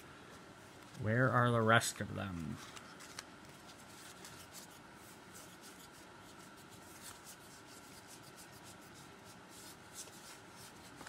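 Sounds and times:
cards sliding and ticking: 2.4 - 11.0.

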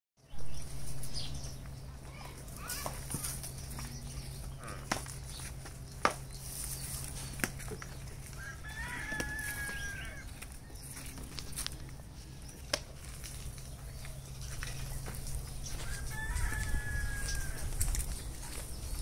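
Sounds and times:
steady low hum: 0.3 - 19.0
rooster crowing: 8.3 - 10.3, 15.7 - 18.0.

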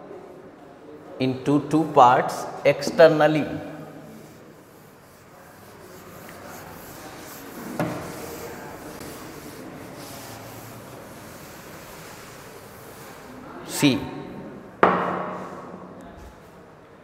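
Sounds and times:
duster scrubbing chalkboard: 3.9 - 15.6.

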